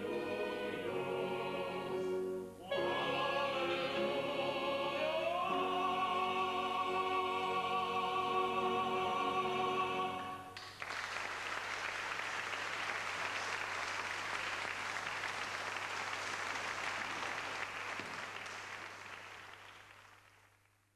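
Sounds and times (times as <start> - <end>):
male choir chord: 0.0 - 10.6
audience applause: 10.6 - 20.7.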